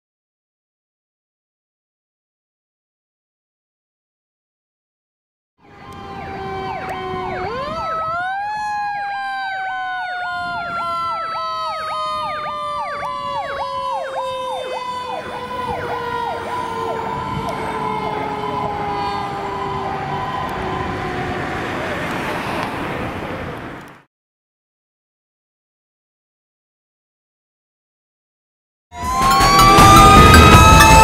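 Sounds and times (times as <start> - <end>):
electronic siren yelping: 5.6 - 21.9, 29.0 - 31.0
steady siren tone: 5.6 - 22.0, 29.0 - 31.0.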